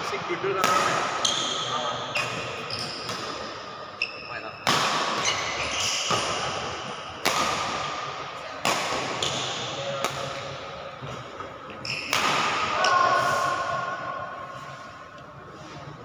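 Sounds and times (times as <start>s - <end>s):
shoes squeaking on court floor: 1.2s - 7.0s, 11.7s - 12.2s.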